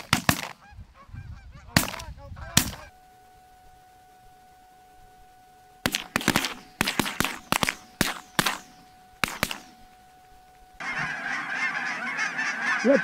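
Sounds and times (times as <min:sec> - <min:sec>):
shotguns firing: 0:00.0 - 0:00.6, 0:01.8 - 0:02.0, 0:02.6 - 0:02.8, 0:05.8 - 0:09.9.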